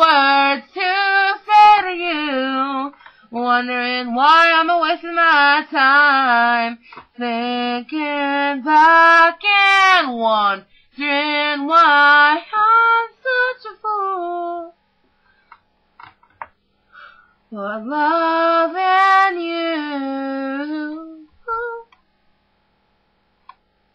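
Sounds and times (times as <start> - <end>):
woman singing unaccompanied: 0.0 - 14.8, 17.5 - 22.0.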